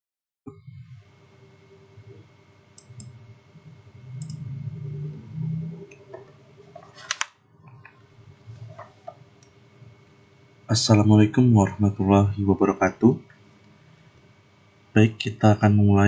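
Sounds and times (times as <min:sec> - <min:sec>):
computer mouse clicks: 0:02.8 - 0:03.2, 0:04.1 - 0:04.4
low muffled rumble: 0:03.1 - 0:07.0.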